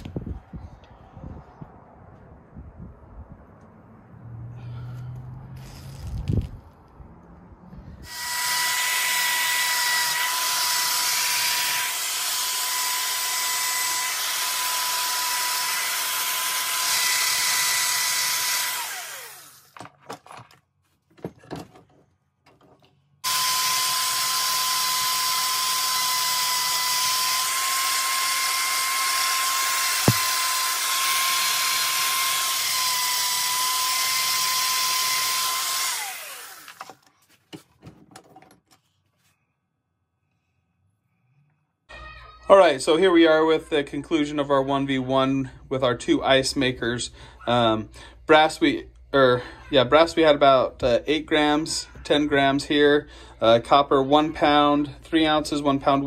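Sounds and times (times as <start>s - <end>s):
wire wheel power tool whining: 8.0s - 19.8s, 23.2s - 37.0s.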